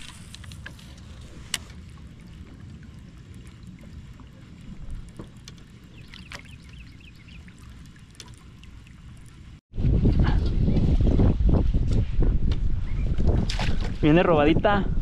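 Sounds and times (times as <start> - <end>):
water lapping against kayak: 0.0 - 9.6
wind on microphone: 9.7 - 15.0.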